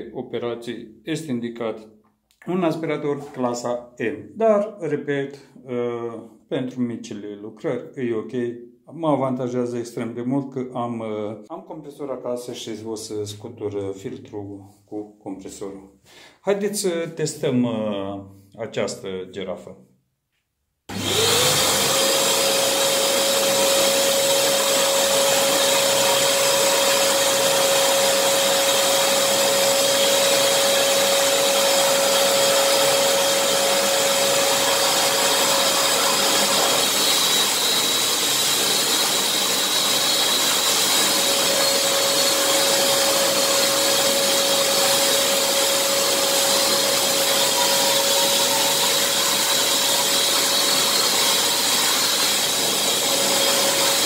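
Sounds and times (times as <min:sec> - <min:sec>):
drywall sander whine: 0:20.9 - 0:54.0
vacuum extractor rushing: 0:20.9 - 0:54.0.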